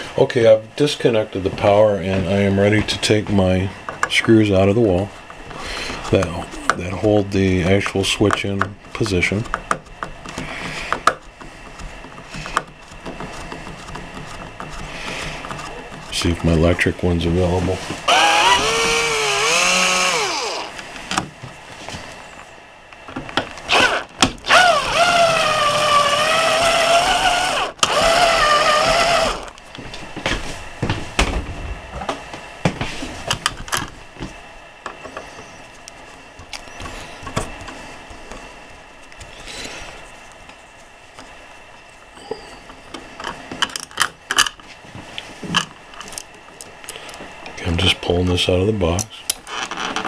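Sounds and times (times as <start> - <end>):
electric screwdriver whining: 18.1 - 20.8, 23.7 - 29.6.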